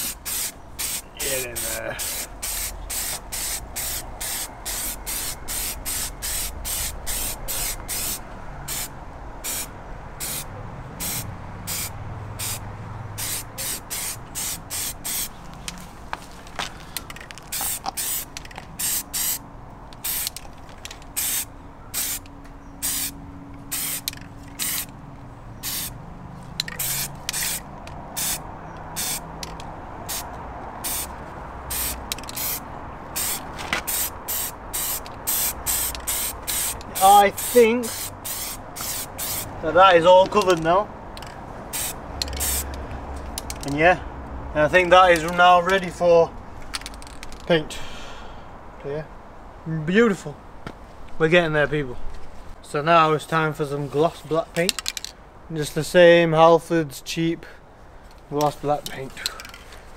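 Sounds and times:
aerosol spray can hissing: 0:02.0 - 0:08.9, 0:13.2 - 0:15.3, 0:17.5 - 0:19.4, 0:20.0 - 0:20.3, 0:21.2 - 0:22.2, 0:22.8 - 0:24.9, 0:25.6 - 0:25.9, 0:26.8 - 0:27.6, 0:29.0 - 0:29.2, 0:30.1 - 0:31.1, 0:31.7 - 0:32.6, 0:33.2 - 0:39.5, 0:41.7 - 0:42.7.

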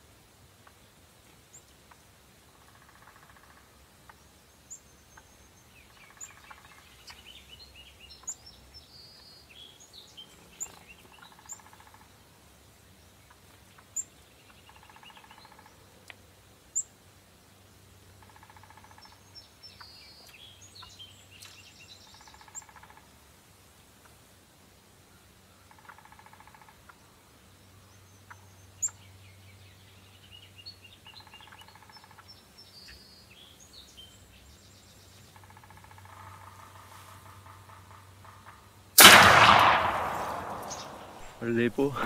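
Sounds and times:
birds chirping and whistling: 0:40.2 - 0:41.3
bird trilled call: 0:40.5 - 0:41.2.

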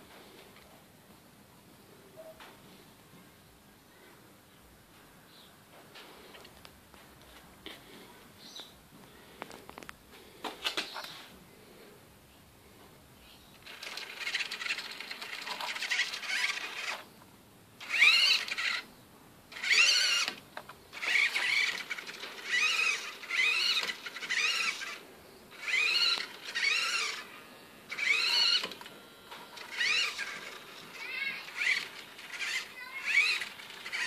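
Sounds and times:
steering servo whining: 0:13.7 - 0:17.0, 0:17.8 - 0:18.9, 0:19.5 - 0:34.0.

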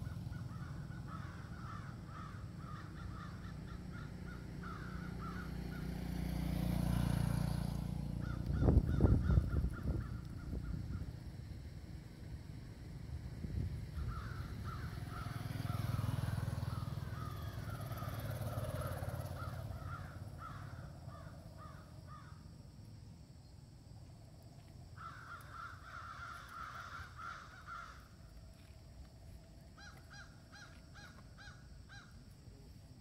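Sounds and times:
harsh animal calls: 0:00.0 - 0:06.0, 0:14.0 - 0:22.3, 0:25.0 - 0:28.2.

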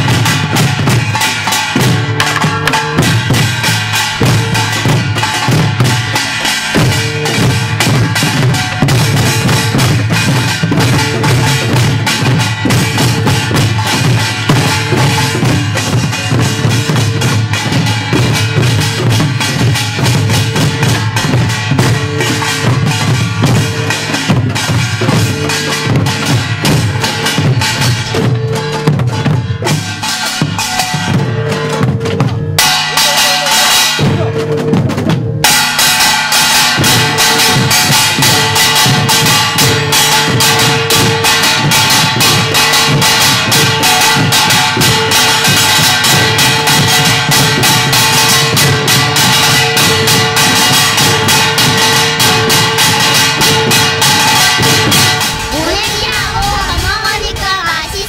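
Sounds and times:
small gongs clanging: 0:00.0 - 0:56.2
hourglass and barrel drums: 0:00.0 - 0:58.0
gong strokes ringing: 0:35.5 - 0:56.0.

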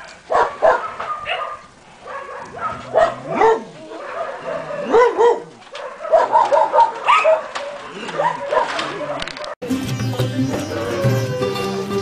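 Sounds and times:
dog barking: 0:00.0 - 0:09.6.

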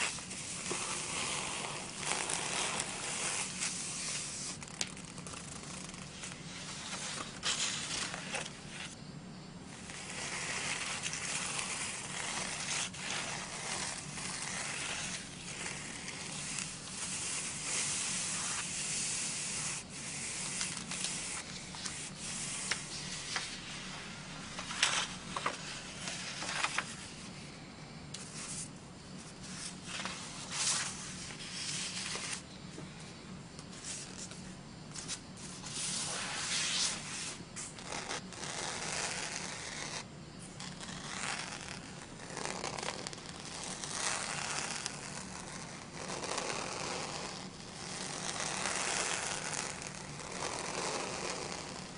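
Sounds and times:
fingertips rubbing paper: 0:00.0 - 0:09.0, 0:09.8 - 0:23.6, 0:35.7 - 0:51.9
paper sheets rasping: 0:00.0 - 0:09.0, 0:09.8 - 0:26.9, 0:35.0 - 0:40.0, 0:40.6 - 0:51.9.

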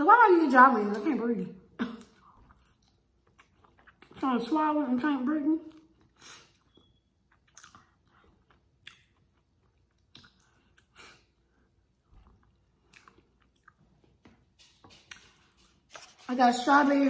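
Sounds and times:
wet chewing and mouth smacks: 0:02.0 - 0:04.2, 0:05.6 - 0:16.1.

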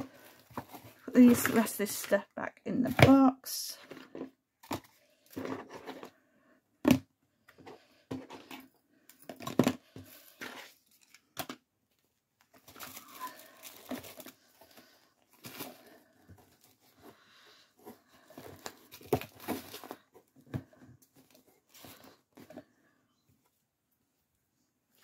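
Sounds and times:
tissue paper rustling: 0:12.6 - 0:16.0.

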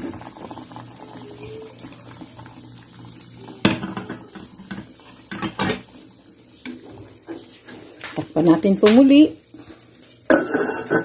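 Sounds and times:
metal pot and utensil clinking: 0:10.2 - 0:11.0.

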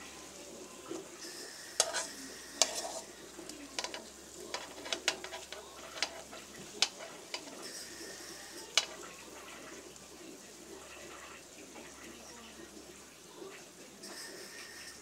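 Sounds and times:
oil sizzling in a wok: 0:00.0 - 0:15.0
tongs clicking against pan: 0:01.8 - 0:07.7, 0:08.7 - 0:10.1.

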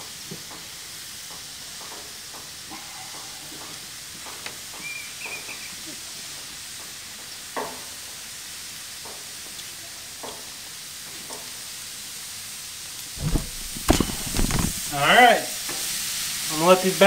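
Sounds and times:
kebabs sizzling on grill: 0:00.0 - 0:17.0
low thump: 0:13.2 - 0:14.9.

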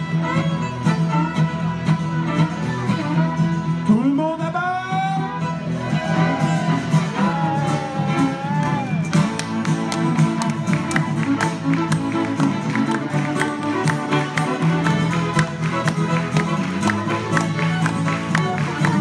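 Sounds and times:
acoustic guitar strumming: 0:00.0 - 0:19.0
fiddles playing: 0:00.0 - 0:19.0
man singing: 0:03.8 - 0:05.4.

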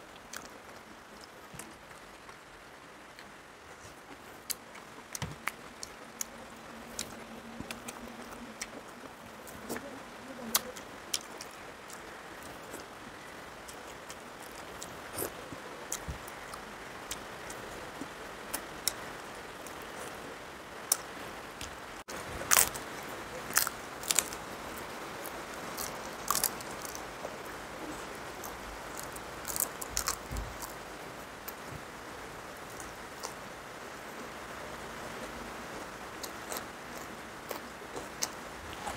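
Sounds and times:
papad crunching as chewed: 0:22.4 - 0:24.4, 0:25.2 - 0:30.8.

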